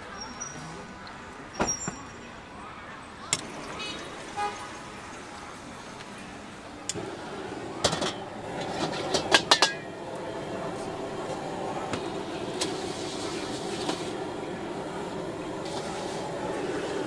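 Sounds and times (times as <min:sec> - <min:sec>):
gas burner hiss: 0:06.7 - 0:17.0
metal ladle clanking on wok: 0:07.8 - 0:09.9.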